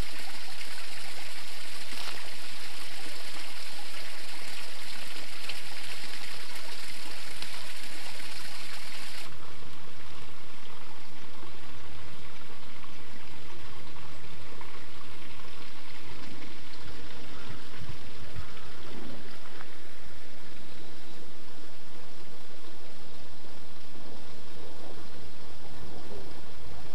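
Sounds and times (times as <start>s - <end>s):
water splashing into a pond: 0.0s - 20.9s.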